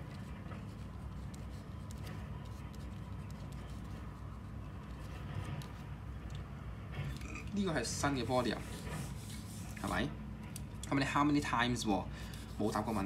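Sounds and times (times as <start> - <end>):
pen scratching on paper: 0.0 - 5.8, 7.8 - 10.1, 12.3 - 13.0
low background hum: 0.0 - 13.0.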